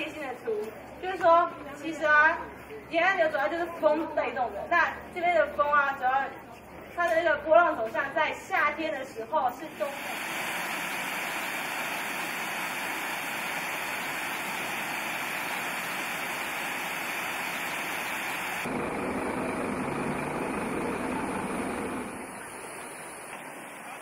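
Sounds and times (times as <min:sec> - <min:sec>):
bus engine running: 0:09.7 - 0:24.0.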